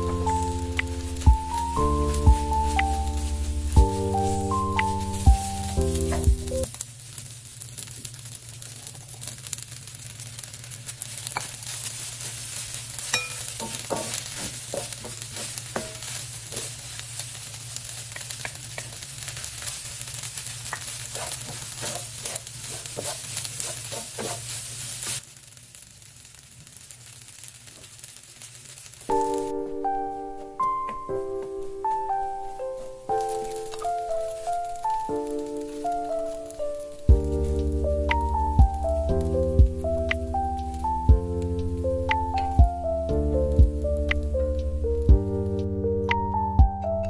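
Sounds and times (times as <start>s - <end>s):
wooden spatula scraping a wok: 0.0s - 6.7s, 11.0s - 25.2s
rice sizzling in a wok: 0.0s - 45.7s.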